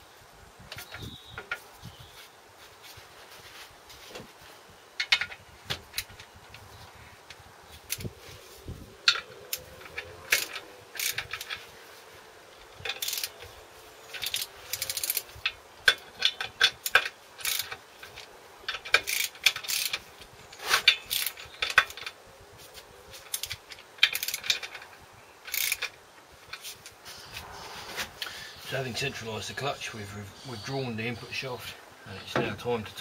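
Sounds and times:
ratchet clicking: 9.0s - 11.7s, 12.8s - 13.5s, 14.1s - 20.1s, 20.8s - 22.1s, 23.2s - 24.8s, 25.4s - 26.7s.

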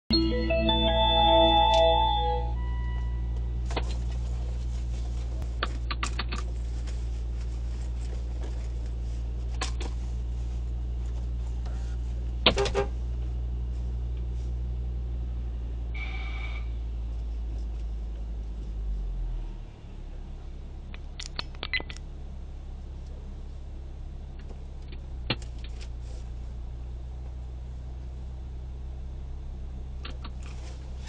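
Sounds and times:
sharp clicks: 20.9s - 22.0s.

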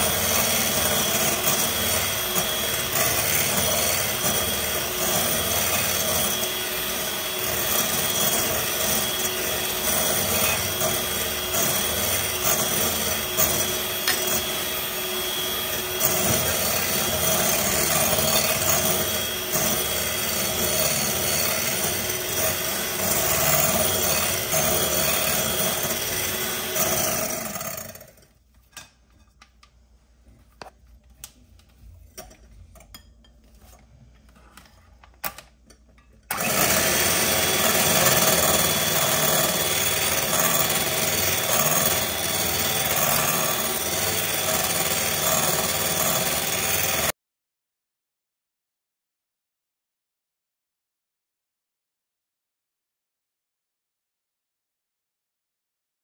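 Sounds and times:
electric hand mixer whirring: 0.0s - 28.3s, 36.3s - 47.2s.

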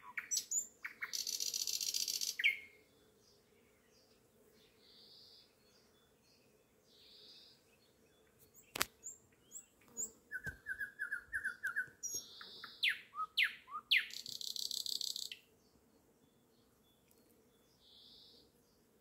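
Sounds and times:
nightingale singing: 0.0s - 2.7s, 8.5s - 15.5s.

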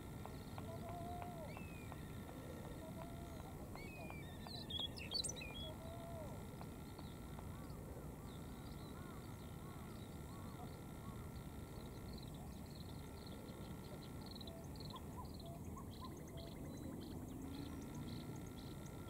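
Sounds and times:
steady background hiss: 0.0s - 19.0s
faint bird chirps: 0.1s - 19.0s
bird singing high whistles: 0.6s - 2.3s.

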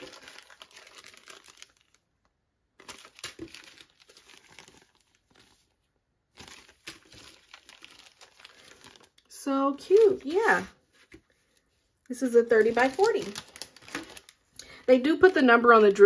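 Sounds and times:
plastic bags crinkling: 0.0s - 16.0s.

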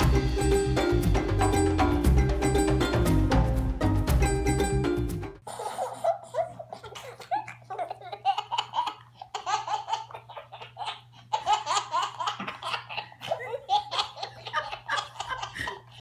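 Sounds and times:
toddler giggling: 5.5s - 16.0s.

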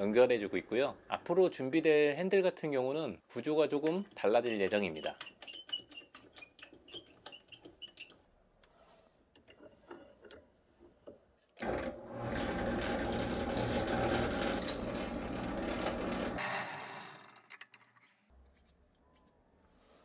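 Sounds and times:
drill press motor running: 11.6s - 16.4s.

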